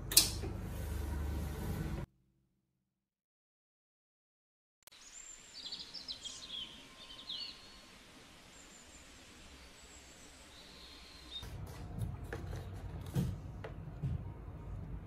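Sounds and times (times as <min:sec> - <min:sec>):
outdoor background hiss: 0:04.9 - 0:11.4
birds chirping: 0:05.0 - 0:11.5.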